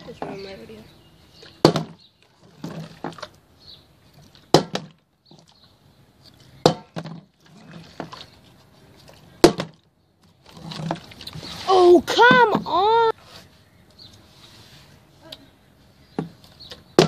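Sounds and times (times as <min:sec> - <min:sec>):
plastic bottle knocking on wooden deck: 0:01.6 - 0:02.0, 0:09.4 - 0:09.8.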